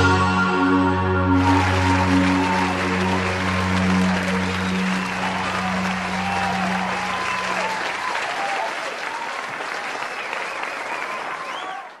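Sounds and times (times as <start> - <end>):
rock band low note: 0.0 - 8.0
audience applause and cheering: 0.0 - 12.0.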